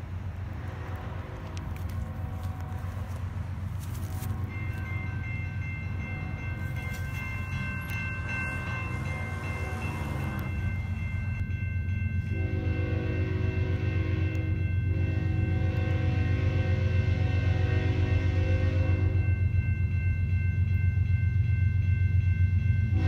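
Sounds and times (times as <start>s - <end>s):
train rumble: 0.0s - 23.0s
train horn chord: 3.9s - 11.1s, 12.2s - 19.5s
lower train horn notes: 4.0s - 5.0s, 12.2s - 19.5s.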